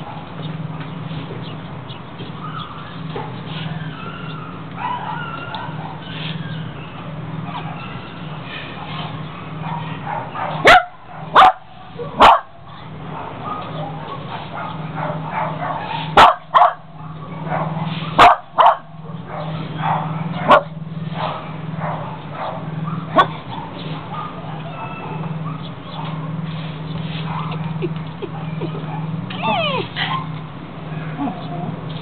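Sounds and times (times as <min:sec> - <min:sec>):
dog barking: 0:04.8 - 0:06.2, 0:07.5 - 0:08.1, 0:08.8 - 0:26.4, 0:27.2 - 0:27.6, 0:28.2 - 0:31.4.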